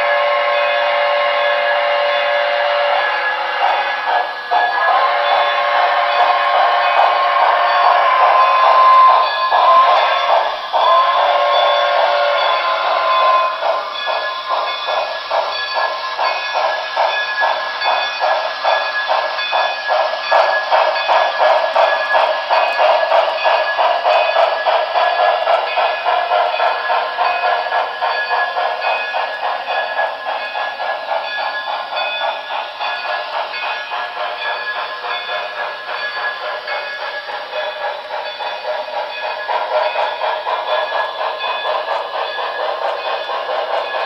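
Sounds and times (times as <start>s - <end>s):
model steam locomotive chuffing: 0.0s - 44.0s.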